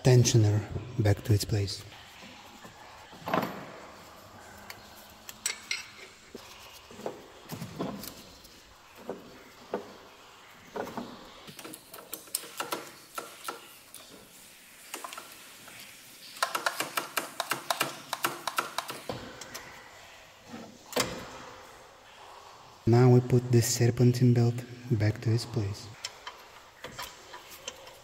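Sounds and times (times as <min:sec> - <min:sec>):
metal tools clinking: 0:05.2 - 0:06.4
socket ratchet clicking: 0:16.4 - 0:19.0.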